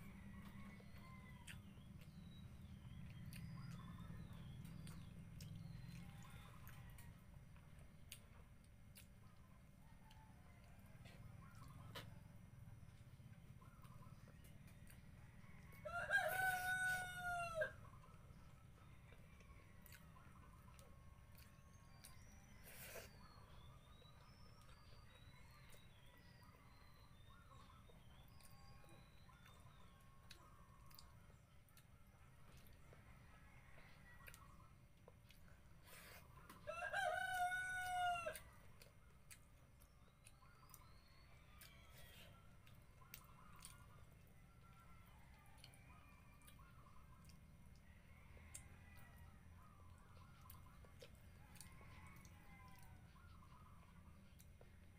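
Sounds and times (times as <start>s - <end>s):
faint eating clicks: 0.0s - 15.9s, 17.7s - 36.7s, 37.3s - 54.9s
rooster crowing: 15.4s - 17.8s, 36.6s - 38.5s.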